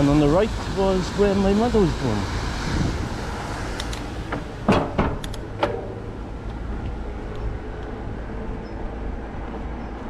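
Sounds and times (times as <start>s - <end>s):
wind rumble on microphone: 0.0s - 10.0s
sharp clicks: 3.8s - 4.1s, 5.2s - 5.5s.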